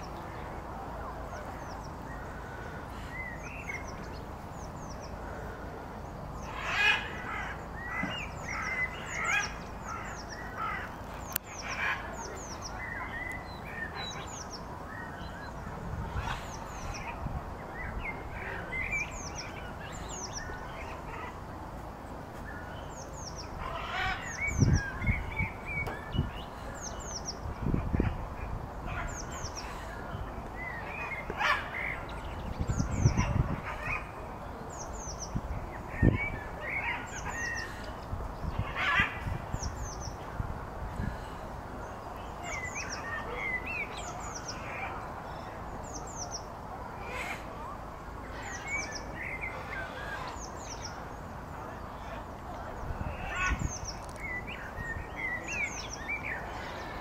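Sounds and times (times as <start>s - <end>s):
birds chirping: 0.0s - 57.0s
lower bird calls: 22.4s - 57.0s.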